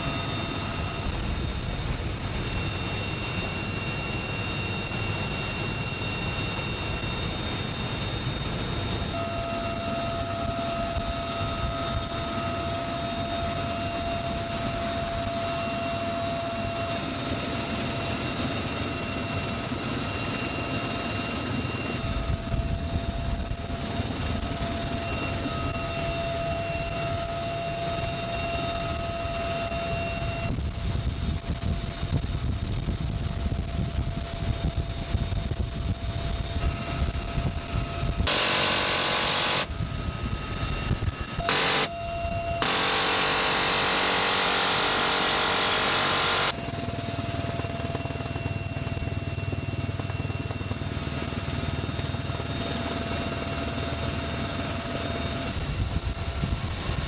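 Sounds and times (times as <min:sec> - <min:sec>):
helicopter cabin whine: 0:00.0 - 0:57.0
rotor and wind rumble: 0:00.0 - 0:57.0
minigun firing burst: 0:38.2 - 0:39.8, 0:41.4 - 0:46.6.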